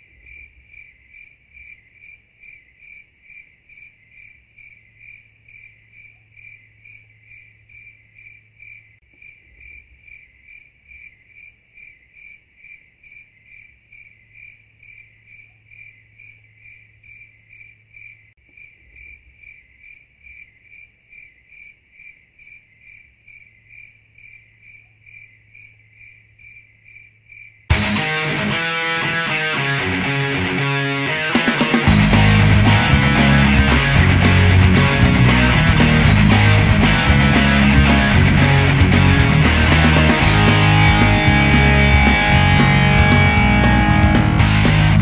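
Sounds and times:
insect chirping: 0.0s - 27.7s.

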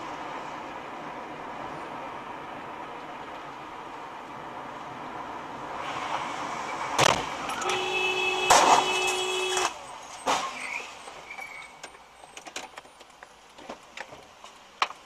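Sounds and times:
car horn: 7.5s - 9.8s.

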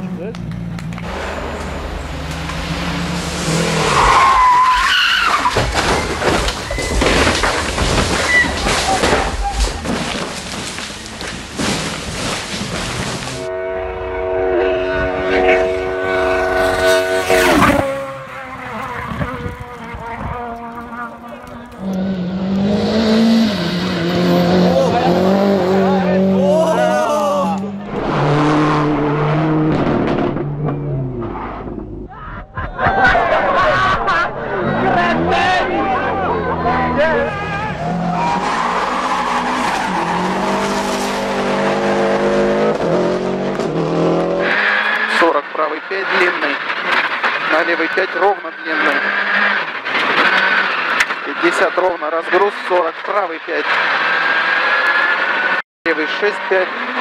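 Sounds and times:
rally car engine at high revs: 0.0s - 4.7s, 15.2s - 32.0s, 34.4s - 52.9s, 53.5s - 57.0s
tyre noise on road: 0.0s - 13.5s, 15.0s - 57.0s.

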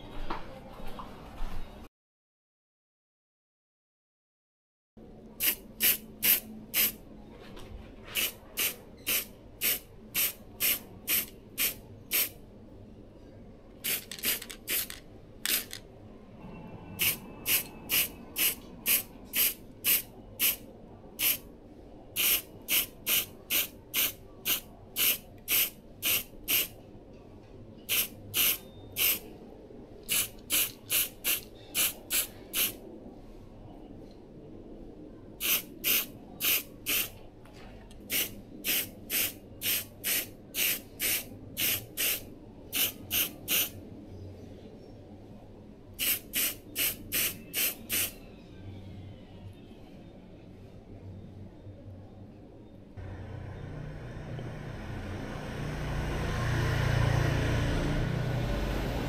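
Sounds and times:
spray can hissing bursts: 5.4s - 7.0s, 8.2s - 12.4s, 13.8s - 15.8s, 17.0s - 20.6s, 21.2s - 21.4s, 22.2s - 26.7s, 27.9s - 29.2s, 30.1s - 32.8s, 35.4s - 37.1s, 38.1s - 43.8s, 46.0s - 48.2s.

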